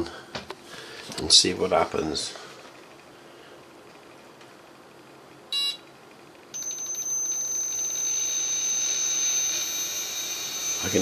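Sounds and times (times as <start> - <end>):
high-pitched motor whine: 6.6 - 11.0
short electronic beep: 6.6 - 11.0.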